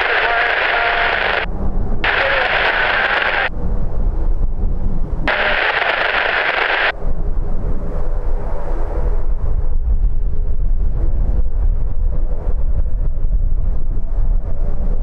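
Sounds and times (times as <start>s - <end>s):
radio hiss: 0.0s - 3.5s, 5.3s - 6.9s
turboprop plane rumble: 0.0s - 15.0s
wind: 0.0s - 15.0s.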